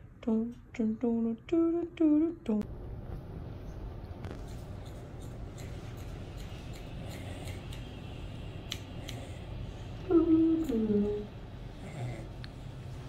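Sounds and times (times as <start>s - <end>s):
shears snipping fur: 4.2s - 7.9s, 8.7s - 9.4s.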